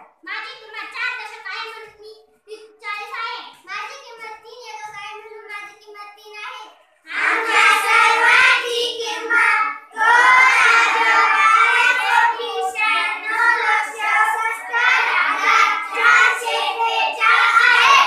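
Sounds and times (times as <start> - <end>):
children singing in unison: 7.1 - 18.0.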